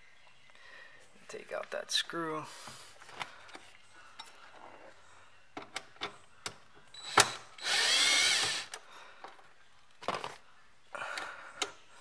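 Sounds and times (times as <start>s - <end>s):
cordless drill backing out screw: 7.0s - 8.8s.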